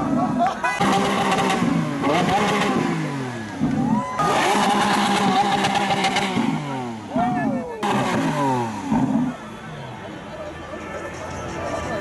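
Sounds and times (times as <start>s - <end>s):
sports car engine revving: 0.0s - 9.5s.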